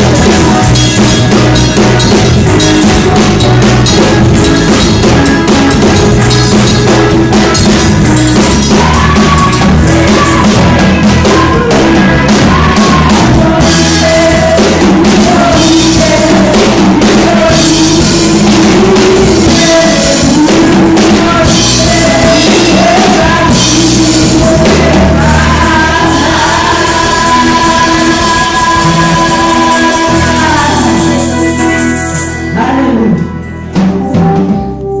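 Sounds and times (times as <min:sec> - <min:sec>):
drum kit: 0:00.0 - 0:35.0
electric keyboard: 0:00.0 - 0:35.0
backing singers: 0:06.9 - 0:31.6
woman singing lead vocal: 0:08.4 - 0:31.6.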